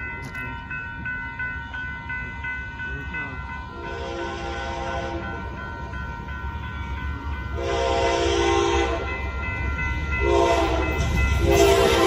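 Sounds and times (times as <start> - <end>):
locomotive horn blasts: 3.7 - 5.4, 7.6 - 9.2, 10.2 - 12.0.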